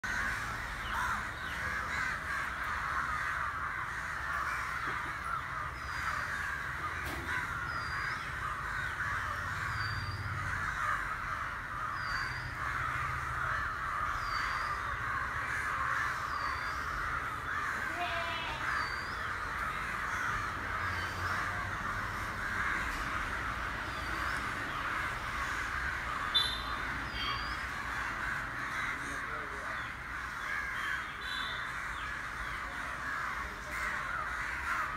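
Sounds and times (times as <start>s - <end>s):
flock of crows cawing: 0.0s - 34.9s
bird chirping: 26.1s - 27.8s.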